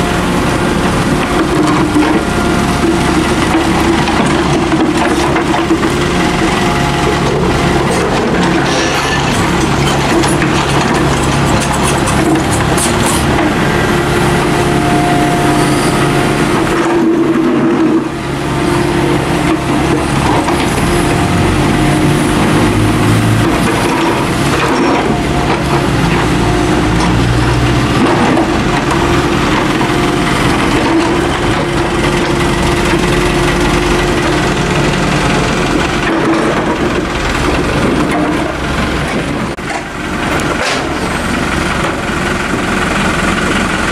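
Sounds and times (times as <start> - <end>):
excavator diesel engine running: 0.0 - 43.9
steel bucket scraping rubble: 7.0 - 13.6.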